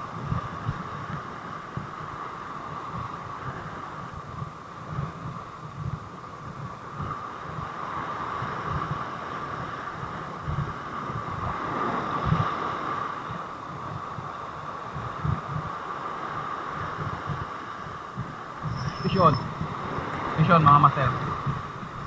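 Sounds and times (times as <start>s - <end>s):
wind buffeting microphone: 0.0s - 22.0s
surf breaking on rocks: 7.0s - 13.6s, 15.2s - 22.0s.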